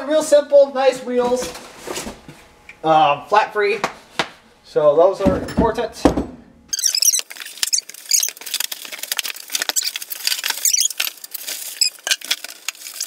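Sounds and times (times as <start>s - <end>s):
cardboard and foam rustling: 7.2s - 13.0s.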